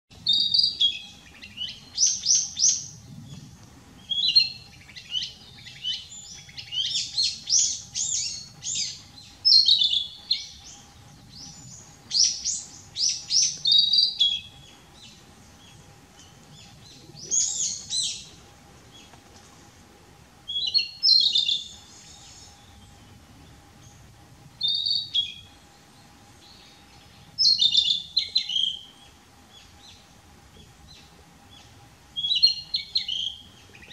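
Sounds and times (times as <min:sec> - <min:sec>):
bird singing whistled phrases: 0:00.2 - 0:02.8, 0:27.4 - 0:28.8.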